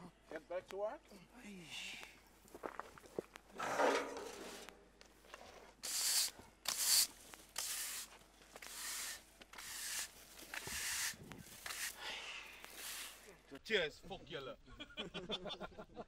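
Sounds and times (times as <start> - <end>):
garden tool scraping dry ground: 3.6 - 13.4.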